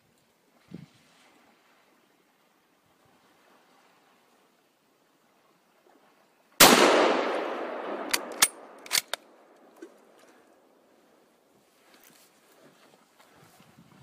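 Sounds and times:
rifle shot with echo: 6.6 - 9.6
sharp clicks: 8.0 - 9.9.

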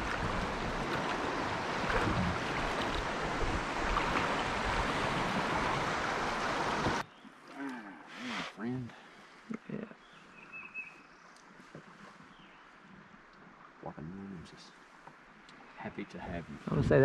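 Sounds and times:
river water rushing: 0.0 - 7.0
wind buffeting microphone: 0.0 - 7.0.

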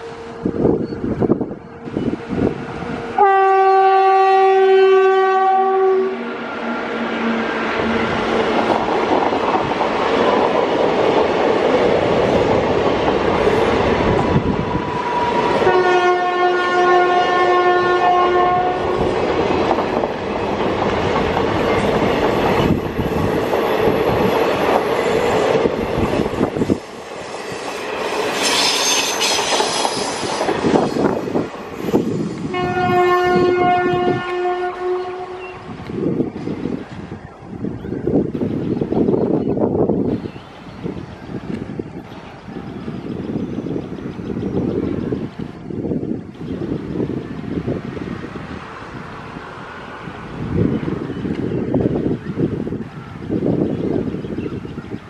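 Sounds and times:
locomotive horn blast: 3.1 - 8.1, 15.6 - 19.0, 32.4 - 35.7
train wheels clacking on rails: 18.9 - 32.6
high-pitched squeal: 24.9 - 32.6.

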